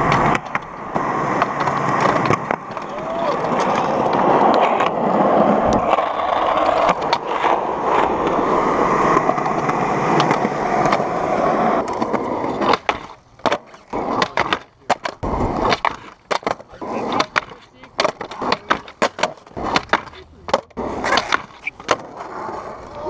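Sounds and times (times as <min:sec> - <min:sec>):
skateboard clacking on ledge: 0:00.0 - 0:05.0, 0:11.8 - 0:23.0
skateboard wheels rolling on asphalt: 0:00.0 - 0:23.0.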